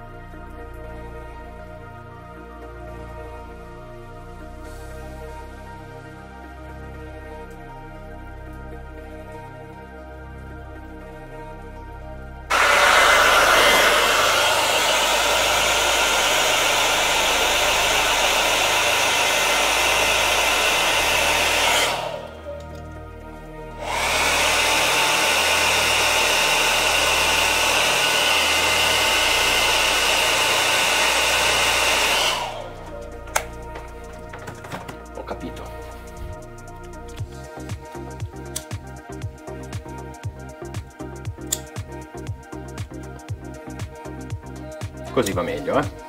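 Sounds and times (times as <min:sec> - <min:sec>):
hot-air blower running: 0:12.5 - 0:22.6, 0:23.8 - 0:33.1.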